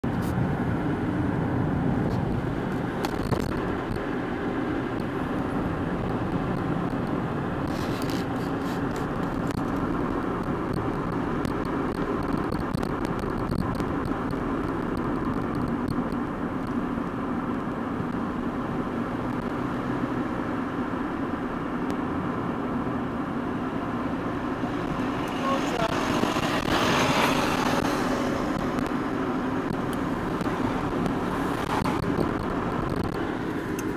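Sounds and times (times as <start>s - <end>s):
car engine and road noise: 0.0s - 33.9s
faint clicks and rattles: 6.5s - 16.8s.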